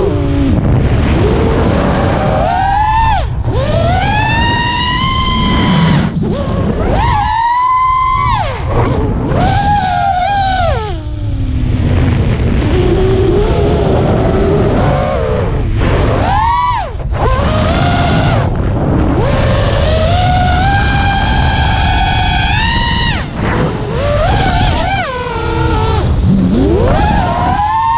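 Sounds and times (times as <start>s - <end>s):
quadcopter motors whining: 0.0s - 27.9s
wind rushing on microphone: 0.0s - 27.9s.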